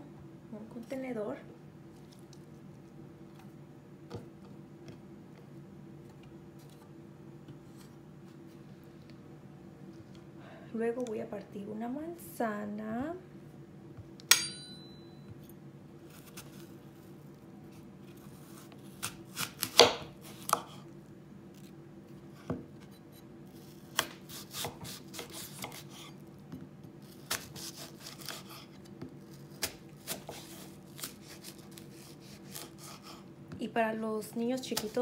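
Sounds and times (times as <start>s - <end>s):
knife cutting apple: 17.7s - 20.8s, 22.4s - 26.2s, 27.0s - 33.3s.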